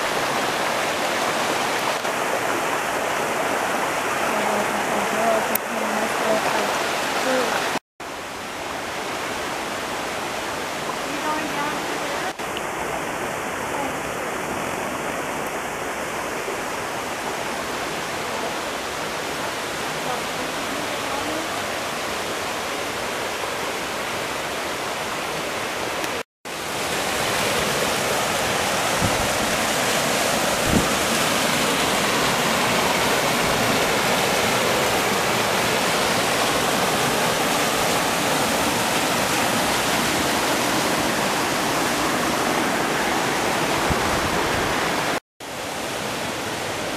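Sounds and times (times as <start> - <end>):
river rushing over boulders: 0.0 - 46.9.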